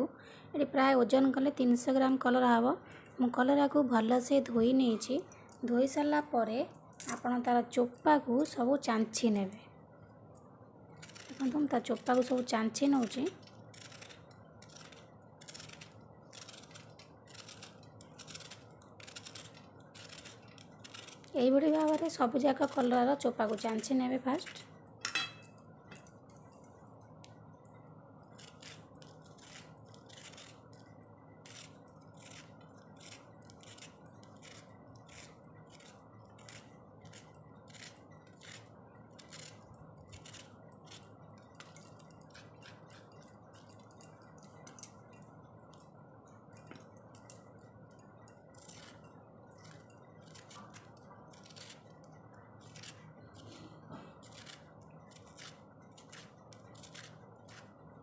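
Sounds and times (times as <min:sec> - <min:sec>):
blade scraping vegetable skin: 0:11.0 - 0:24.6, 0:28.4 - 0:30.6, 0:31.4 - 0:41.0, 0:49.6 - 0:51.9, 0:52.6 - 0:57.7.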